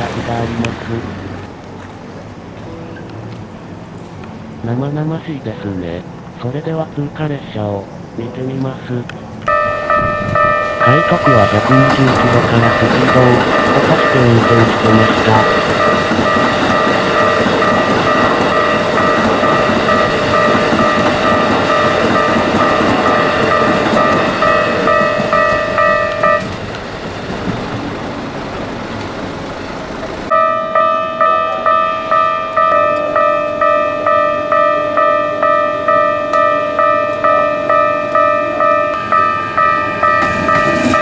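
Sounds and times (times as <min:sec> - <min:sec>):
train running noise: 0:00.0 - 0:41.0
level crossing warning bell: 0:02.4 - 0:26.7, 0:30.2 - 0:41.0.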